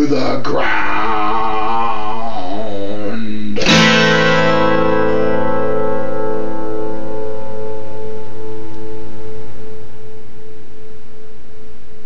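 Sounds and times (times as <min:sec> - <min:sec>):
acoustic guitar chord ringing: 0:03.6 - 0:10.7.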